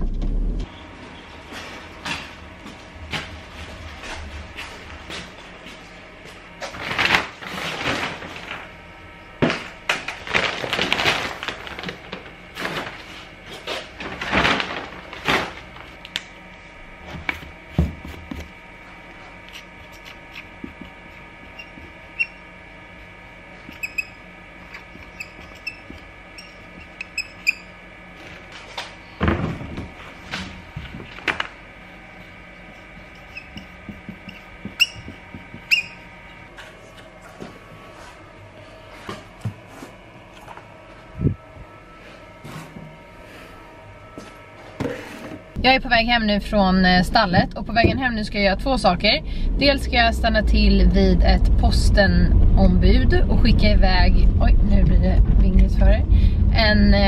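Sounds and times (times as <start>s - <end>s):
plastic sacks rustling: 6.7s - 8.7s, 9.7s - 16.0s.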